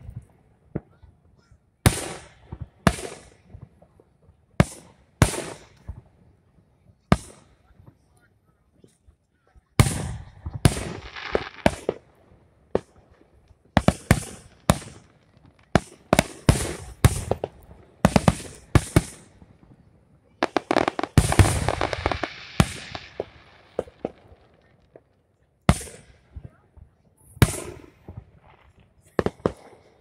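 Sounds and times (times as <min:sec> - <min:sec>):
firework crackling: 0:09.8 - 0:12.1, 0:12.7 - 0:19.6, 0:20.3 - 0:25.1
firework shells bursting: 0:20.4 - 0:25.0.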